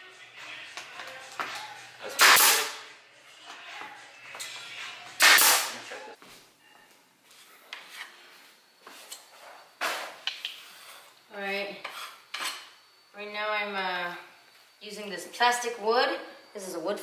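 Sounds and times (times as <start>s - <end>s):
nail gun firing: 2.2s - 2.8s, 5.2s - 5.8s.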